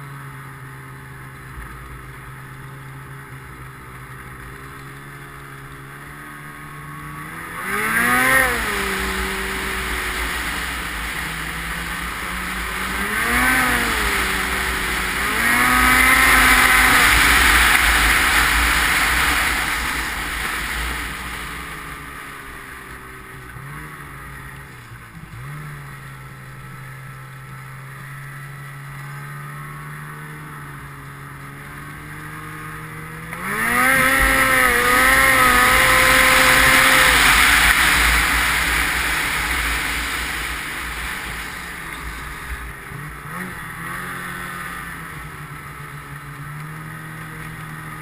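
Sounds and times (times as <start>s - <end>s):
snowmobile engine revving: 0.1s - 48.0s
rushing wind: 7.4s - 22.8s, 33.4s - 43.4s.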